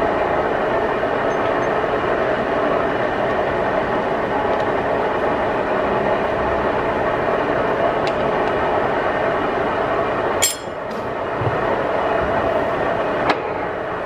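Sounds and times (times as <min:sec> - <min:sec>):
sharp metallic clink: 0:10.4 - 0:11.0.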